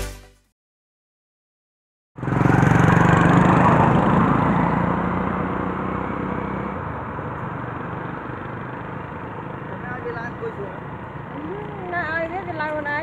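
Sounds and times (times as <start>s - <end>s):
engine running steadily: 6.8s - 13.0s.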